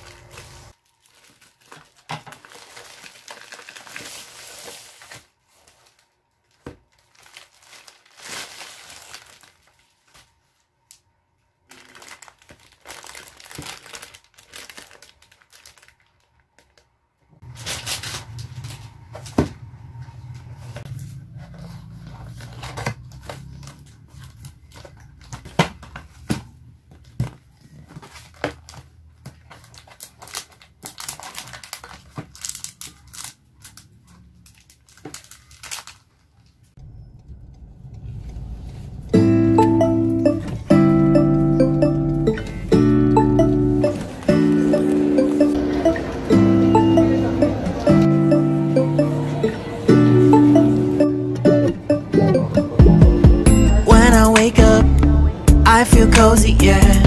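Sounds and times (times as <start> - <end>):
packaging crinkling and rustling: 0.0 - 19.4, 20.6 - 36.8
low steady hum: 36.8 - 56.3.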